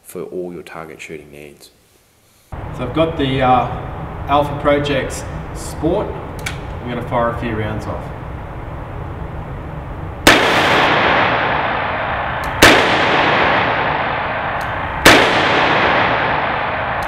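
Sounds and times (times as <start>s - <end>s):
revolver shots echoing: 10.2s - 17.0s.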